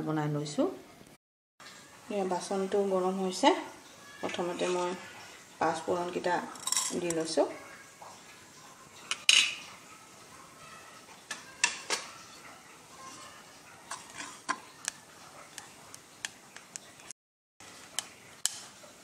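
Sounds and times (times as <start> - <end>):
seeds crackling in hot pot: 13.0 - 18.8.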